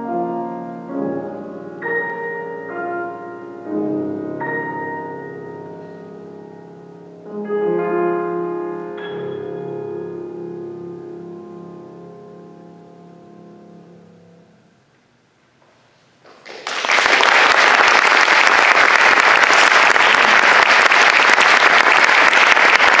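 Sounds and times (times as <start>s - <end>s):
piano chord: 0.0s - 15.0s
audience applause: 16.2s - 23.0s.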